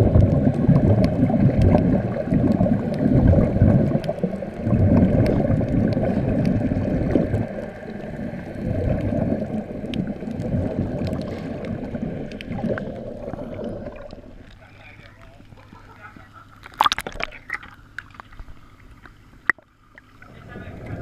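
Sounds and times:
underwater air bubbling: 0.0 - 21.0.

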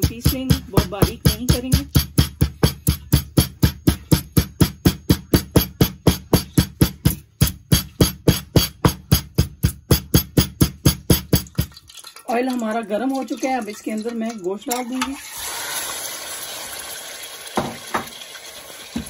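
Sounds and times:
pestle pounding in stone mortar: 0.0 - 11.9.

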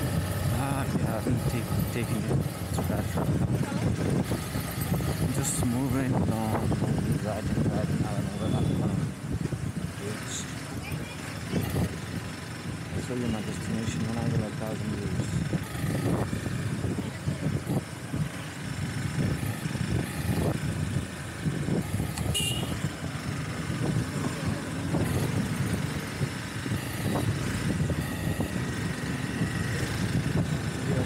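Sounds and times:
motorbike engine rumble: 0.0 - 31.0
traffic: 0.0 - 31.0
short high-pitched beep: 8.3 - 8.9, 19.3 - 20.5, 26.7 - 27.3, 28.0 - 28.6.

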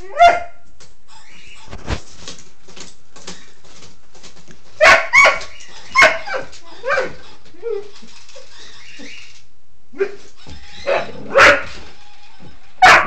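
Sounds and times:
puppy barking: 0.0 - 0.6, 4.8 - 7.9, 10.0 - 11.8, 12.8 - 13.0
puppy yipping: 4.8 - 9.3, 10.0 - 11.8
dog whining: 5.1 - 9.4, 10.0 - 11.8.

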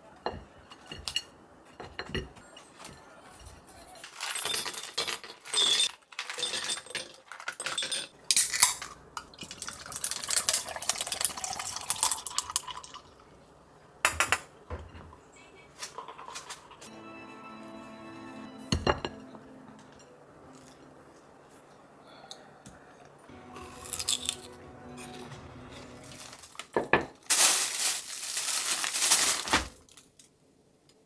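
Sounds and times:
ice clinking: 4.2 - 13.2, 23.6 - 29.3
coffee pouring over ice: 9.4 - 13.2.

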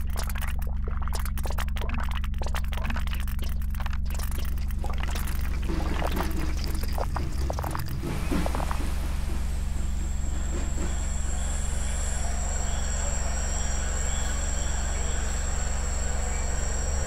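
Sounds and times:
dense crackling clicks: 0.0 - 8.9
low hum: 0.0 - 17.0.

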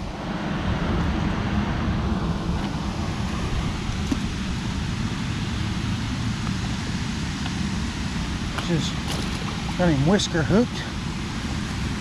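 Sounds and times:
water pouring over spillway: 8.6 - 10.7.

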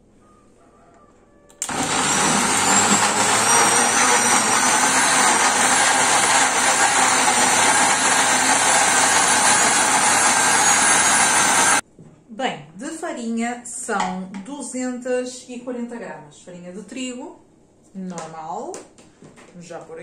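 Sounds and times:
blender motor whining: 1.6 - 11.8.

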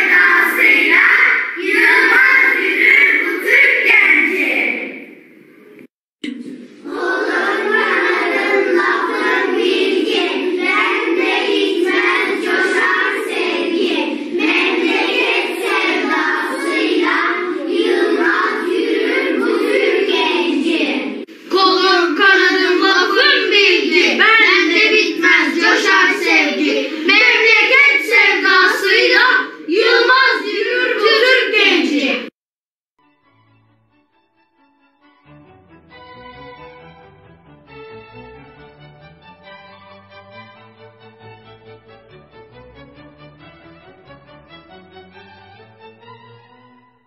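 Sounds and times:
children singing: 0.0 - 5.0, 6.2 - 32.3.

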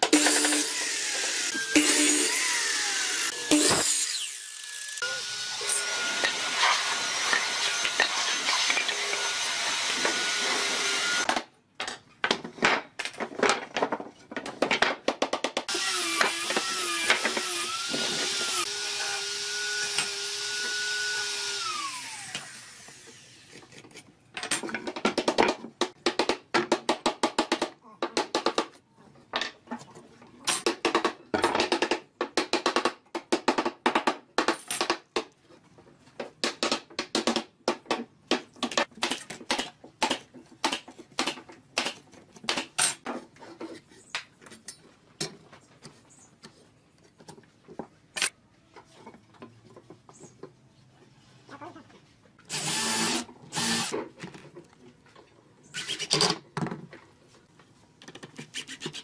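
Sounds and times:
power tool bursts: 52.5 - 53.9.

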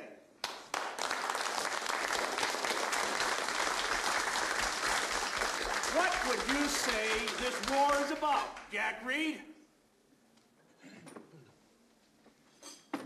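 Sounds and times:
crowd applauding: 0.4 - 8.8.

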